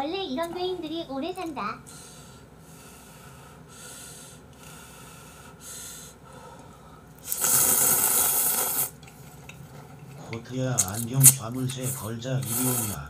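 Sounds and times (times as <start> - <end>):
person slurping noodles: 7.2 - 9.4, 10.8 - 13.0.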